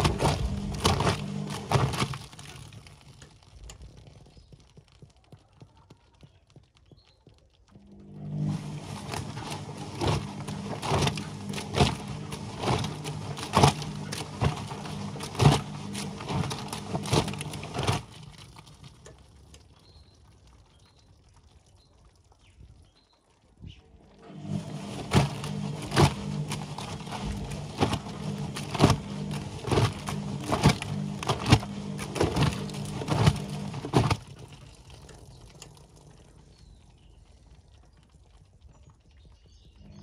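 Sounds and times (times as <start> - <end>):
washing machine motor hum: 0.0 - 3.1, 7.8 - 19.2, 23.9 - 37.3, 39.8 - 40.0
wet laundry splashing in drum: 0.0 - 3.8, 8.0 - 23.1, 24.0 - 38.7
water trickling into drum: 8.3 - 40.0.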